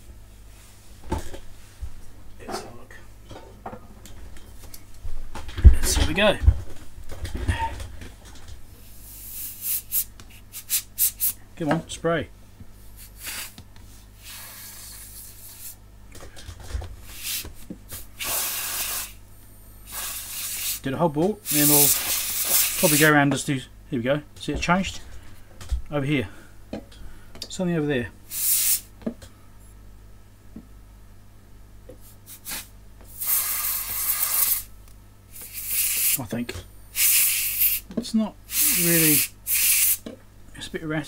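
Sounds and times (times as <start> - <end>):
spray can hissing: 9.0 - 11.4, 13.0 - 13.6, 14.2 - 15.8, 17.1 - 19.2, 19.9 - 20.8, 21.5 - 23.1, 28.3 - 28.9, 32.3 - 34.7, 35.3 - 36.2, 37.0 - 37.9, 38.5 - 40.0.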